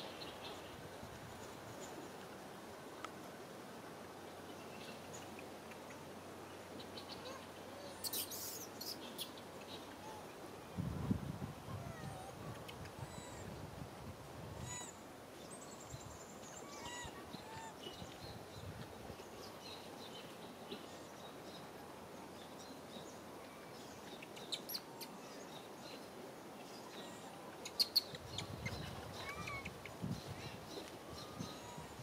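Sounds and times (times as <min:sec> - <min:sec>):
high chirping calls: 0:07.0 - 0:09.3, 0:27.6 - 0:32.0.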